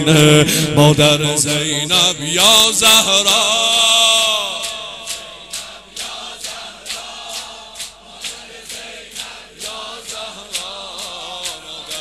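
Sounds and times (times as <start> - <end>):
crowd chanting: 2.0 - 12.0
rhythmic chest slapping: 2.4 - 12.0.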